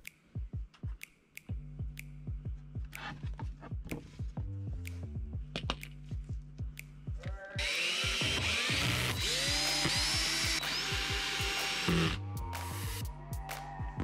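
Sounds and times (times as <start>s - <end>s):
background music with a beat: 0.0s - 14.0s
cordless drill driving screws: 7.6s - 12.2s.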